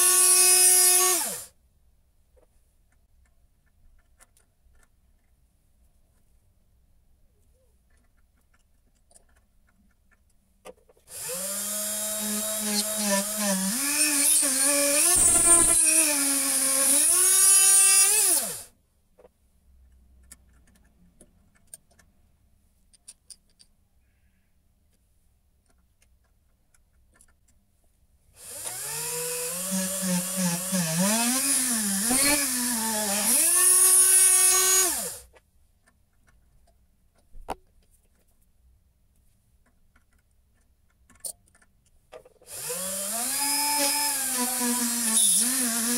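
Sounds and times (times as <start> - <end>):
electric drill motor running: 0.0 - 1.5, 11.1 - 18.7, 28.4 - 35.2, 42.5 - 45.9
drill cutting hiss: 11.1 - 18.6, 28.4 - 35.2, 42.5 - 45.9.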